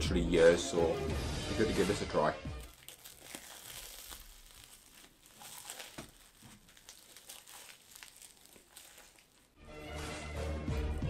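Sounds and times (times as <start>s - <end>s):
person chewing crunchy pastry: 2.6s - 9.6s.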